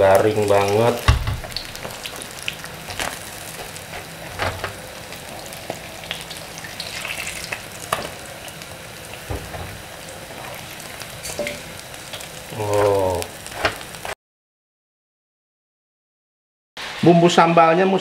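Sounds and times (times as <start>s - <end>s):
fish sizzling in hot oil: 0.0s - 14.2s.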